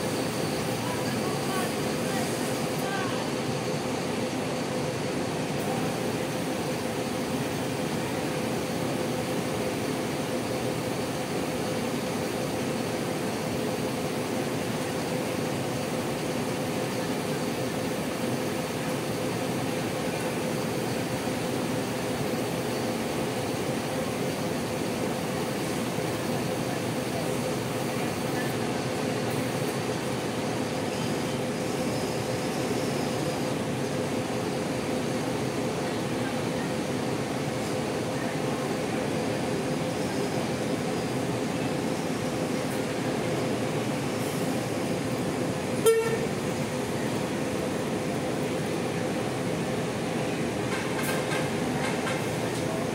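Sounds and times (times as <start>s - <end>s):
diesel engines idling: 0.0s - 52.9s.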